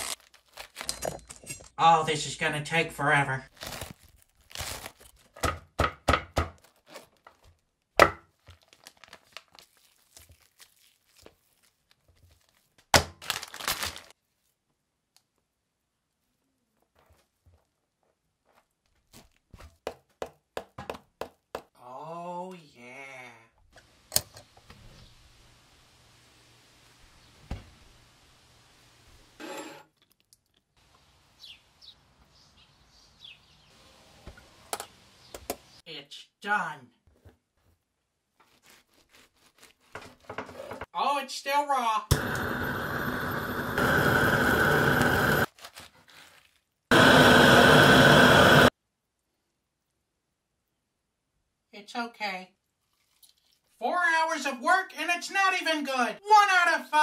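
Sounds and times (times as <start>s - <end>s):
cabbage leaves cracking: 0.0s - 0.9s, 3.5s - 5.4s, 8.3s - 14.5s, 38.5s - 39.9s, 45.5s - 46.9s
knife cutting plastic package: 0.0s - 1.0s, 3.5s - 5.4s, 6.6s - 7.5s, 8.4s - 14.2s, 38.4s - 40.3s, 45.5s - 46.7s
songbird chirps: 30.9s - 35.9s.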